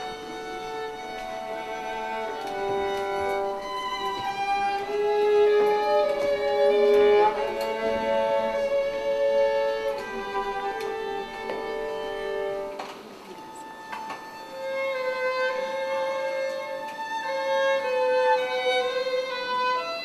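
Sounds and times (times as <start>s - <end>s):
violins playing slow melody: 0.0s - 20.0s.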